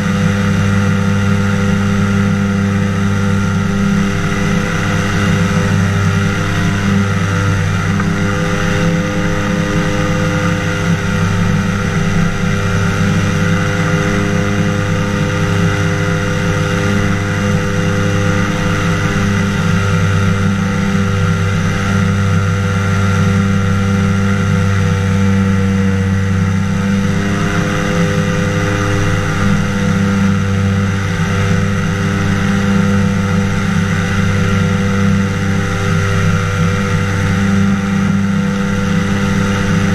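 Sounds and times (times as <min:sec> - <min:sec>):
aircraft engine and propeller drone: 0:00.0 - 0:39.9.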